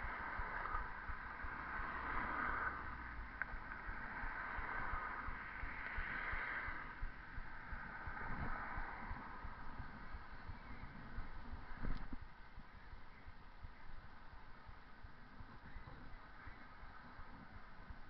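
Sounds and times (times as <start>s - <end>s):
wind buffeting microphone: 0.0s - 18.0s
faint click: 11.8s - 12.2s.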